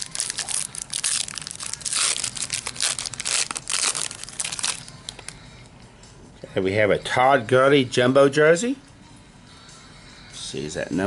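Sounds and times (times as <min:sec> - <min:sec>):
foil wrapper crinkling: 0:00.0 - 0:05.3.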